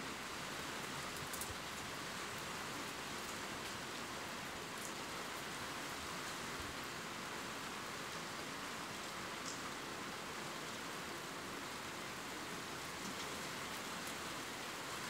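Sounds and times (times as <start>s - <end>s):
steady rain in a forest: 0.0s - 15.0s.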